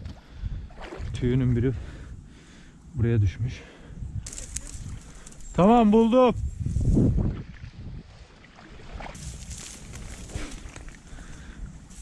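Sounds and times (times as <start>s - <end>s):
wind buffeting microphone: 0.0s - 12.0s
dry reeds rustling: 4.2s - 7.1s, 9.0s - 12.0s.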